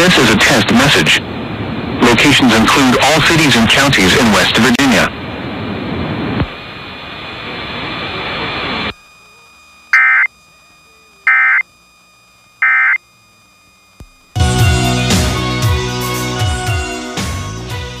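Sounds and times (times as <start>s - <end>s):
digital data tone bursts: 9.9s - 10.4s, 11.2s - 11.7s, 12.6s - 13.1s.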